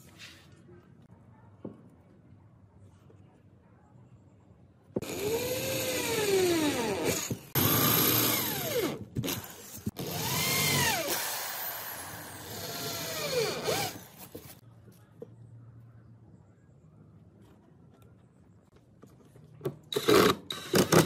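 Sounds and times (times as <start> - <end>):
power drill boring into chipboard: 5.0 - 14.1.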